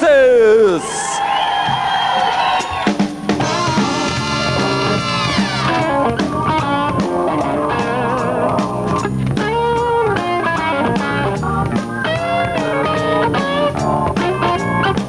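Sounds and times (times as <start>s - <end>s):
live band instrumental music: 2.6s - 15.0s.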